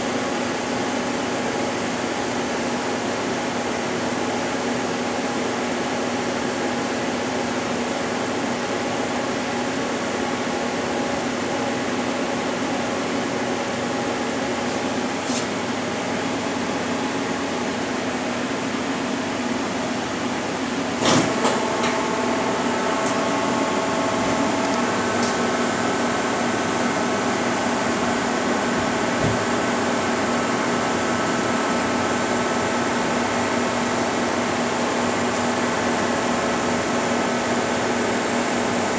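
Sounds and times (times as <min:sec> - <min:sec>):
sharp clunk: 0:21.0 - 0:21.6.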